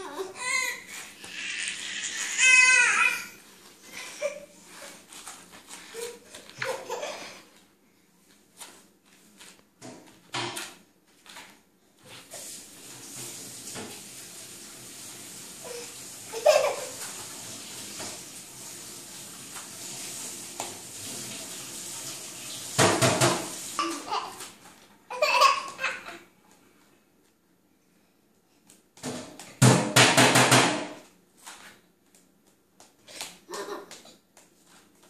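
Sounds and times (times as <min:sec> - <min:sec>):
toddlers squealing and laughing: 0:00.0 - 0:04.9.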